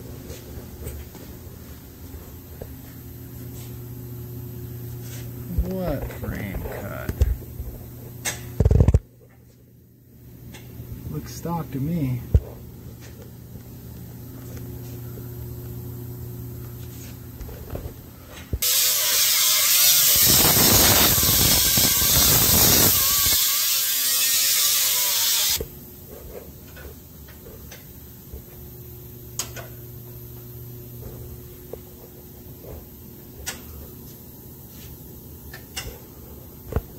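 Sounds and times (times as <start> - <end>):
welding arc crackling and hissing: 18.5 - 25.6.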